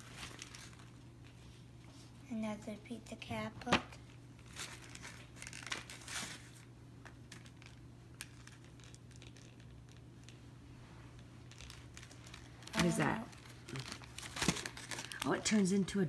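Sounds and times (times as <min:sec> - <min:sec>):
packaging crinkling and rustling: 0:00.0 - 0:01.4, 0:04.0 - 0:10.4, 0:11.1 - 0:16.0.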